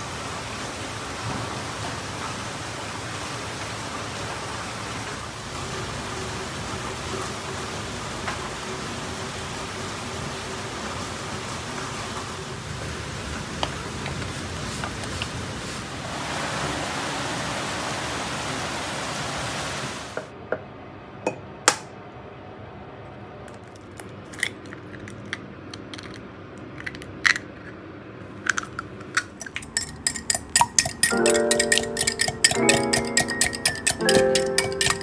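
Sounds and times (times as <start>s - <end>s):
rain hissing: 0.0s - 20.3s
utensils clinking on ceramic bowls: 28.5s - 35.0s
whisk beating egg in mug: 29.1s - 35.0s.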